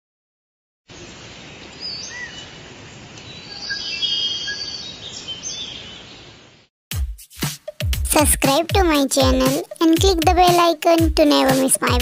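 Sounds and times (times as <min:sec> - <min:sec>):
steady hiss: 0:00.9 - 0:03.4
birds chirping and whistling: 0:01.8 - 0:02.5, 0:03.3 - 0:06.2.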